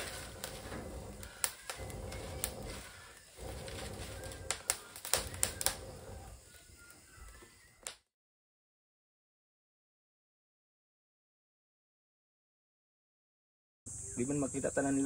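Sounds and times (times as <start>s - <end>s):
wood fire crackling and popping: 0.0s - 8.0s.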